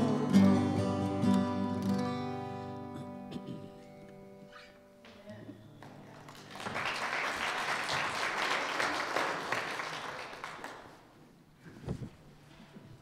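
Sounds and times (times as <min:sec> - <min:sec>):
guitar music: 0:00.0 - 0:06.0
audience clapping: 0:05.8 - 0:11.2.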